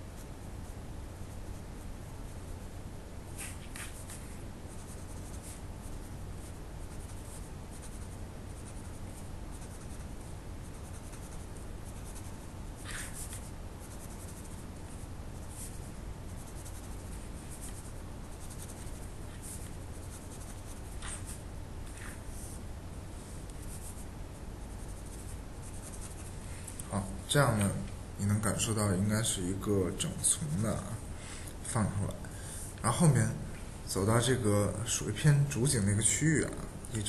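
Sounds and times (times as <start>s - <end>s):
steady low hum: 0.0s - 37.0s
pen scratching on paper: 3.4s - 22.2s, 23.6s - 24.1s, 24.7s - 26.3s.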